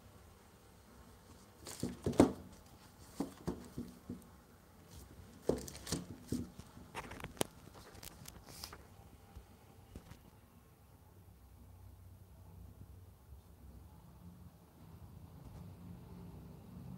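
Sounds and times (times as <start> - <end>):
book handling taps and rustles: 1.3 - 4.3, 4.9 - 8.8.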